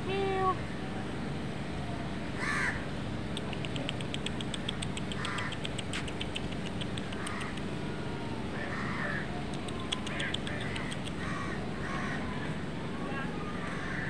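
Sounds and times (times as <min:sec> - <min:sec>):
crows cawing: 0:02.4 - 0:02.8, 0:05.2 - 0:05.6, 0:08.6 - 0:09.3, 0:10.6 - 0:12.4, 0:13.6 - 0:14.0
faint high ticks: 0:03.4 - 0:07.7.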